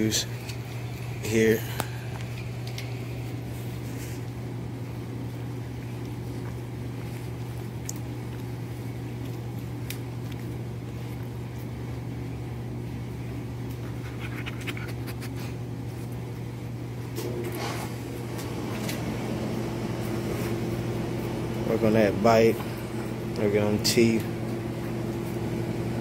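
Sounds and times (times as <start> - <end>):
low mechanical hum: 0.0 - 26.0
dog chewing: 1.9 - 12.5, 13.2 - 16.4.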